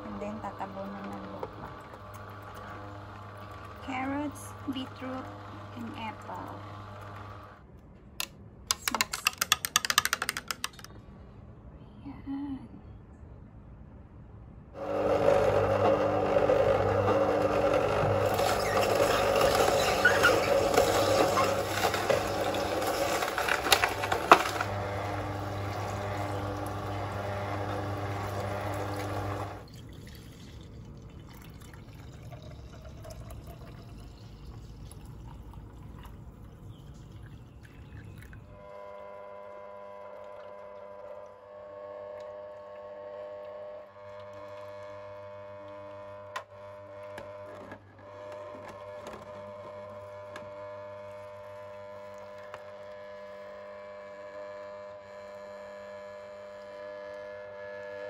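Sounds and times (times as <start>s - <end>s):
juicer motor hum: 0.0s - 7.7s, 14.8s - 58.0s
juice pouring into jug: 0.1s - 7.7s, 14.8s - 46.0s, 51.0s - 53.0s
produce being crushed: 16.9s - 29.6s
hum with held tones: 32.3s - 58.0s.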